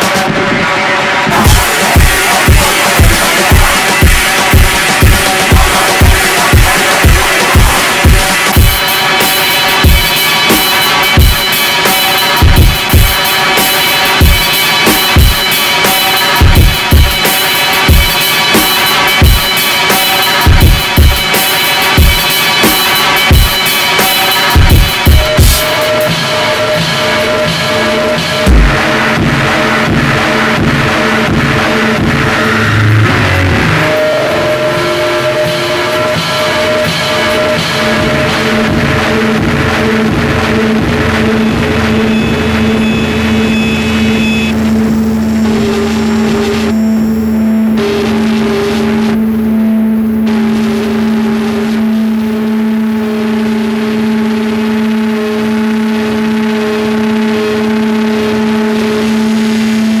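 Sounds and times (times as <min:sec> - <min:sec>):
loud rock music: 0:00.0 - 1:00.0
low droning tone: 0:25.6 - 1:00.0
higher held tone: 0:41.2 - 0:50.4.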